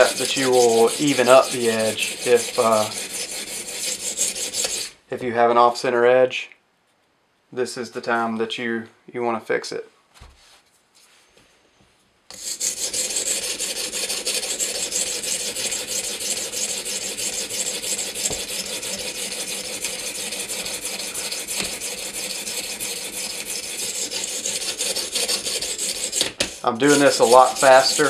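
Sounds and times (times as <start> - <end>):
sharpening stone scraping blade: 0.0 - 4.9, 12.3 - 28.0.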